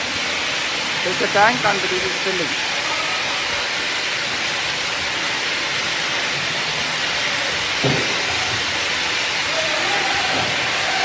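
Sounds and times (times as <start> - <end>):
kitchen machinery hissing: 0.0 - 11.0
steel container knocking: 7.6 - 11.0.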